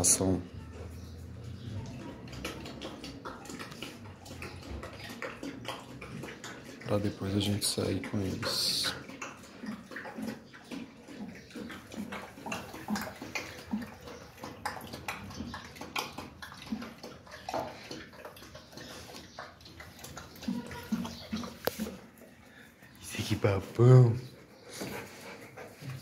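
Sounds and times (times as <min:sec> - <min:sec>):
dog lapping water: 0:00.0 - 0:23.6.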